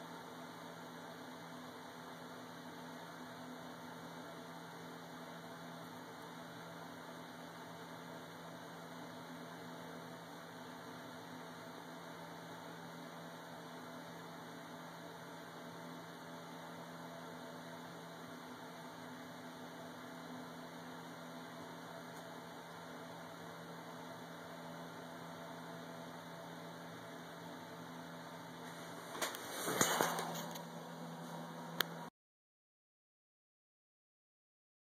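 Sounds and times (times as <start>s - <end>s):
low hum and hiss: 0.0s - 32.1s.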